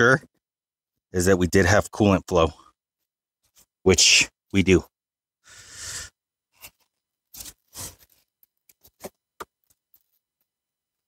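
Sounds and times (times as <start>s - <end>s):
scrapes and rustles: 6.6s - 9.2s.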